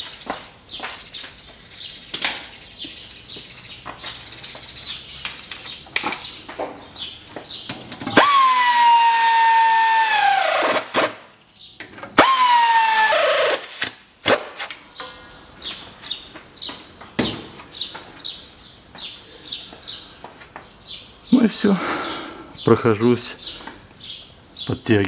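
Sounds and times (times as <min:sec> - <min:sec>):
electric ratchet whining: 0:08.2 - 0:11.0, 0:12.2 - 0:14.0.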